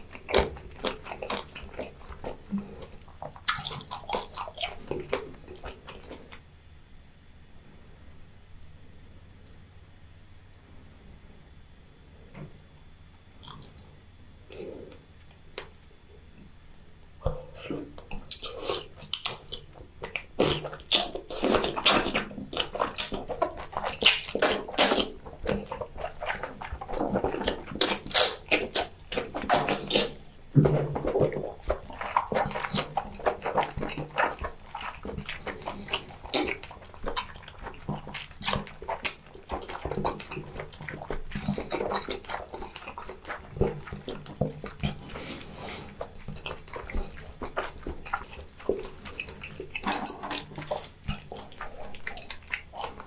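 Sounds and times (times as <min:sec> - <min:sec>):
wet slurping and chewing: 0:00.0 - 0:06.5, 0:12.8 - 0:16.6, 0:17.2 - 0:53.0
mouth smacks: 0:17.2 - 0:53.0.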